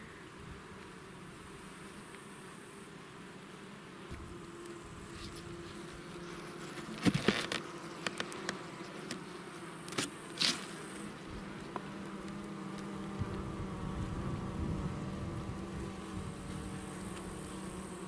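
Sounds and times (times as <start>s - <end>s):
honey bees buzzing: 0.0s - 18.0s.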